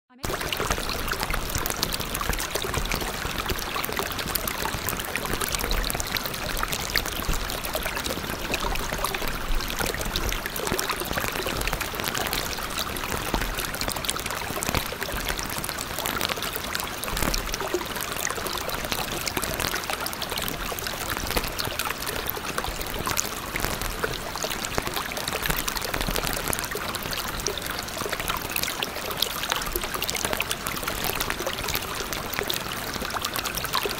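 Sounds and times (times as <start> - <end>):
running trickling water: 0.2 - 33.9.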